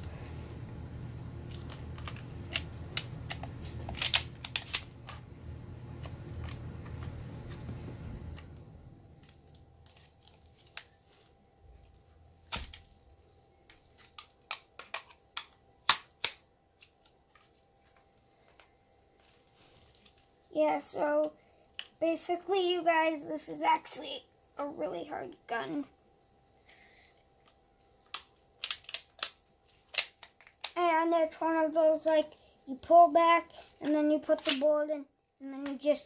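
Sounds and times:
plastic toy clicks and rattles: 0:03.3 - 0:05.2, 0:28.1 - 0:30.8, 0:33.8 - 0:34.7.

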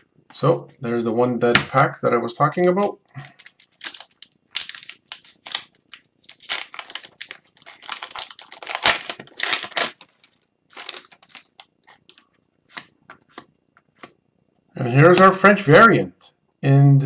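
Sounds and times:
foil wrapper crinkling and tearing: 0:03.1 - 0:12.9.

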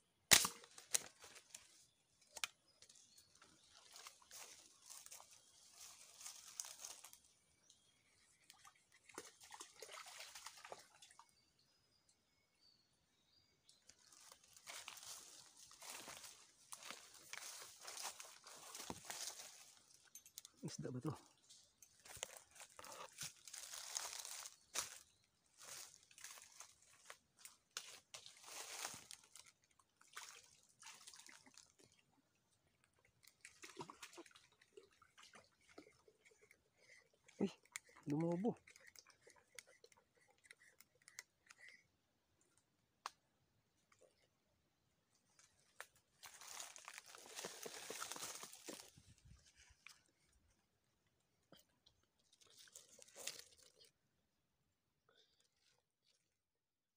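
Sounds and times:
dry leaves and twigs rustling: 0:00.3 - 0:07.3, 0:13.9 - 0:31.8, 0:45.3 - 0:50.2, 0:52.3 - 0:53.9
faint water splashing and dripping: 0:02.4 - 0:11.5, 0:13.7 - 0:25.0, 0:25.6 - 0:41.7, 0:45.9 - 0:50.1.

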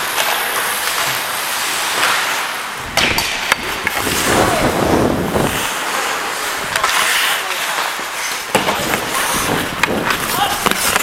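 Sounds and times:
hockey sticks clacking: 0:00.0 - 0:04.4, 0:05.4 - 0:11.0
skates scraping on ice: 0:00.0 - 0:11.0
wind rumble on microphone: 0:02.8 - 0:05.7.

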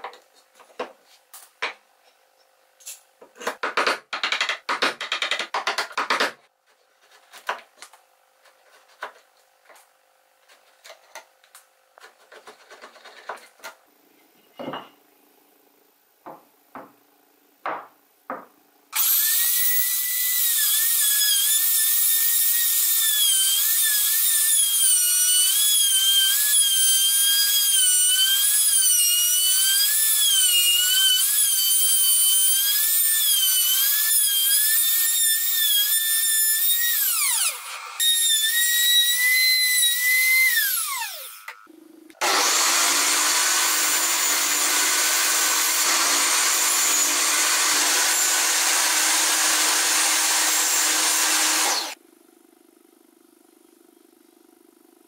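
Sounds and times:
chisel scraping wood: 0:08.4 - 0:09.8, 0:12.0 - 0:13.8
router whining: 0:19.0 - 0:52.0.

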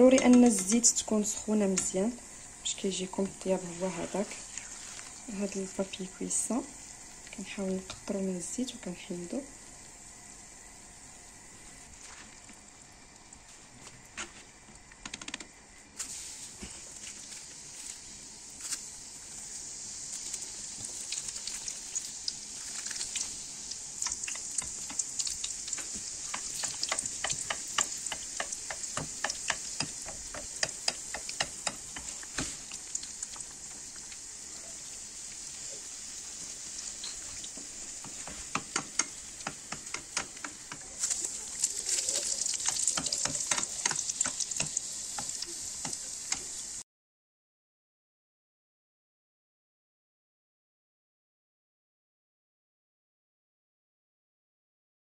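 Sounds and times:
dough deep-frying in hot oil: 0:00.0 - 0:46.8.

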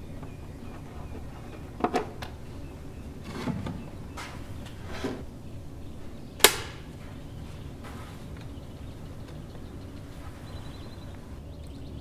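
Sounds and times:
soft rustles: 0:06.9 - 0:11.4.

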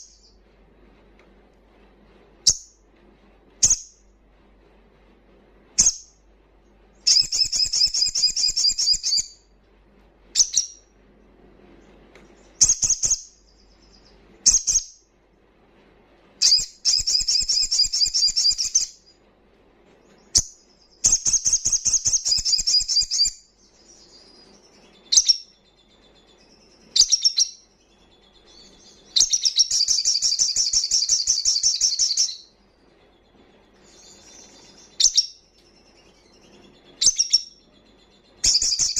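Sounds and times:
bird singing trilled phrases: 0:07.0 - 0:09.5, 0:10.4 - 0:10.9, 0:12.5 - 0:15.0, 0:16.4 - 0:19.2, 0:20.1 - 0:38.9.

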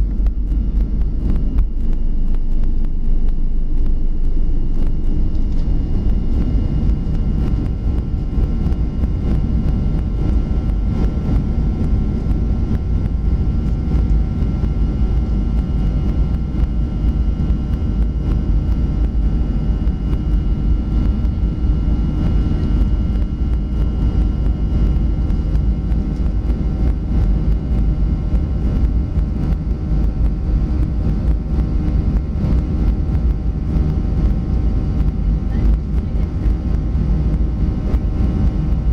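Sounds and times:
faint whining tones: 0:00.0 - 0:38.9
jet engine low rumble: 0:00.0 - 0:38.9.

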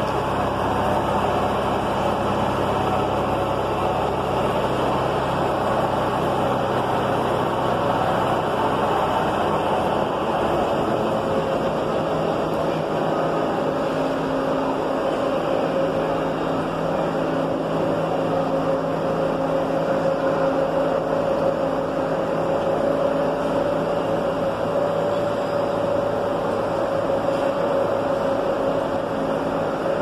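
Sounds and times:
train equipment humming: 0:00.0 - 0:30.0.

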